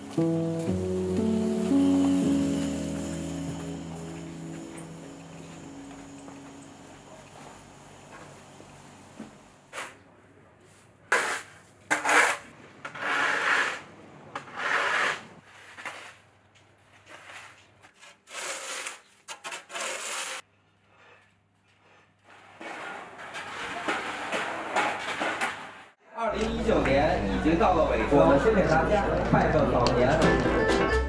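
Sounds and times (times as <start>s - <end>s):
snow shovels scraping pavement: 0.1s - 6.2s, 16.9s - 20.4s, 22.2s - 25.8s.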